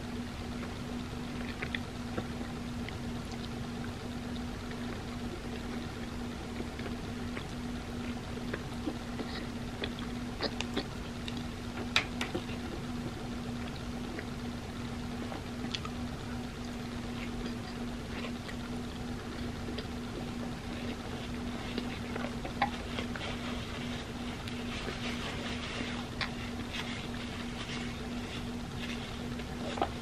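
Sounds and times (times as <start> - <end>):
steady low hum: 0.0 - 30.0
wet chewing: 4.3 - 12.9, 15.3 - 30.0.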